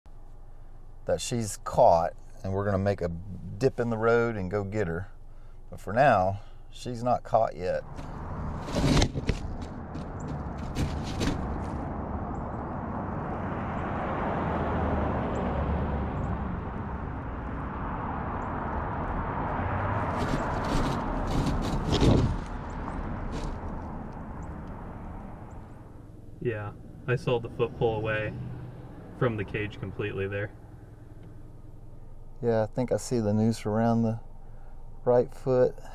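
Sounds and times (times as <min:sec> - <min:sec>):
vehicle passing: 0:07.8 - 0:33.1
sharp clicks and knocks: 0:07.9 - 0:11.8.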